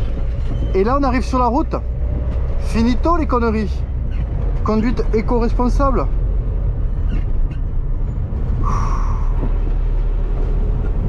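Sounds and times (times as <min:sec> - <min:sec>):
van engine and road rumble: 0:00.0 - 0:11.0.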